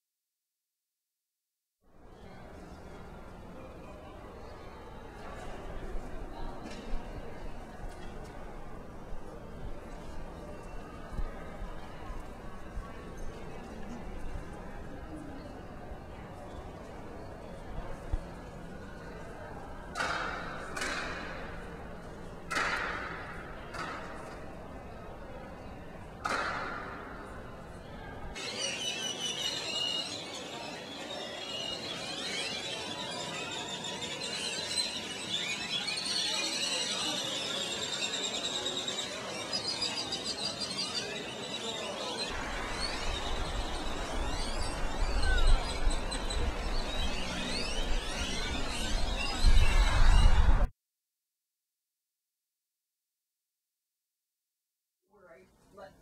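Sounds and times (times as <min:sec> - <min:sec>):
birds chirping and whistling: 0:28.4 - 0:50.6.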